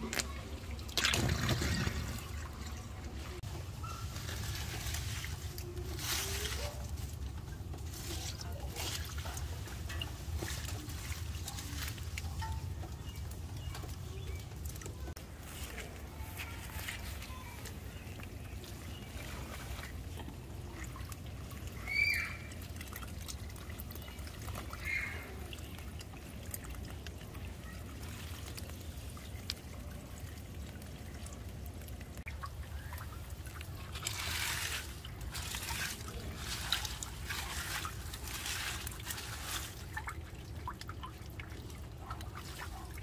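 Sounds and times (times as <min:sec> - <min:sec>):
water trickling into drain: 0:00.0 - 0:43.0.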